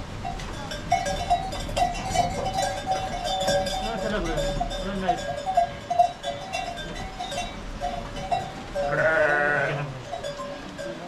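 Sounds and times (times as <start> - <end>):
livestock bell clinking: 0.0 - 11.0
sheep bleating: 8.8 - 10.0.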